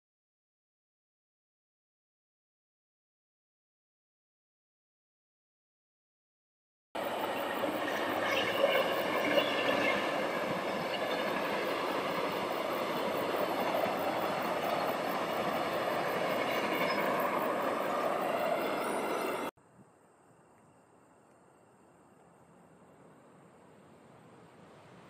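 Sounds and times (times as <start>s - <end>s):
train wheels rushing on rail: 7.0s - 19.5s.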